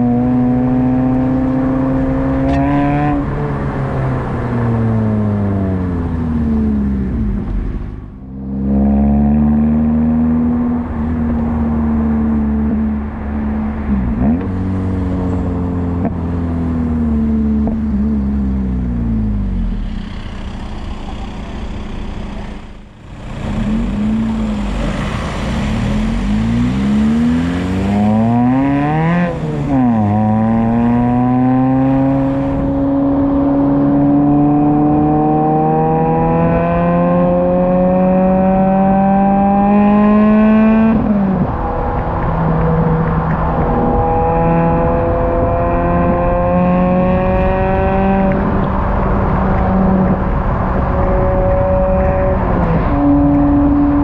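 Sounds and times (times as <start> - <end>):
car engine revving through gear changes: 0.0 - 7.5, 8.4 - 12.8, 14.0 - 54.0.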